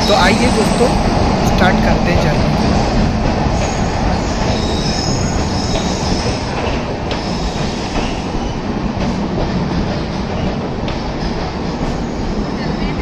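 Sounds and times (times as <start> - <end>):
train wheels rumbling on rail: 0.0 - 13.0
high wheel squeal: 3.5 - 6.5.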